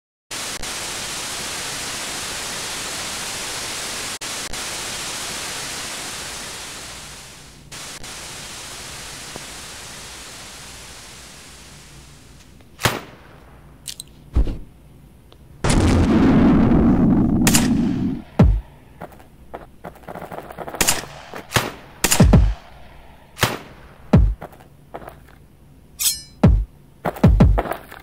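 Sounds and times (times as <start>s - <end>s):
television static hiss: 0.3s - 15.9s, 17.0s - 28.0s
gunfire crack and thump: 12.8s - 13.2s, 17.5s - 18.6s, 20.1s - 22.6s, 23.4s - 24.5s.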